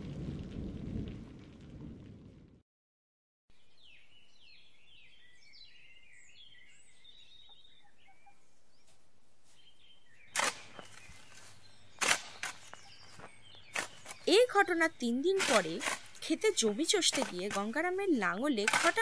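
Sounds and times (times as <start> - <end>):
birds chirping: 3.6 - 19.0.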